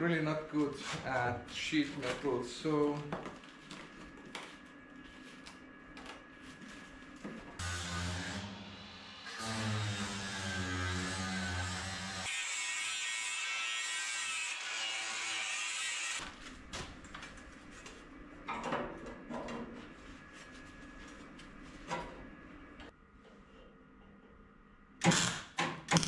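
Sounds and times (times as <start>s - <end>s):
power tool cutting sheet steel: 7.6s - 16.2s.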